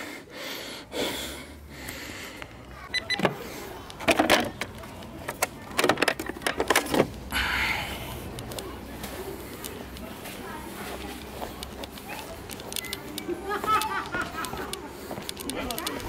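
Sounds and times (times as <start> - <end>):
plastic clicks and knocks: 3.2 - 7.1.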